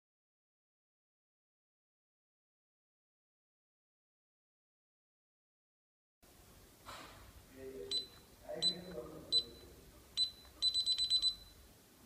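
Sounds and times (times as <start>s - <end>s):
alarm keypad beeping: 7.9s - 11.6s.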